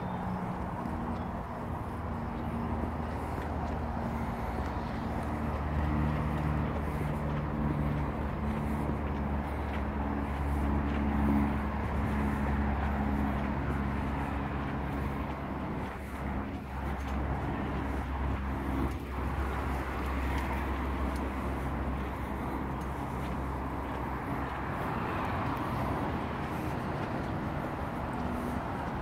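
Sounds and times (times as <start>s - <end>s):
low engine hum: 0.0s - 29.0s
road traffic drone: 0.0s - 29.0s.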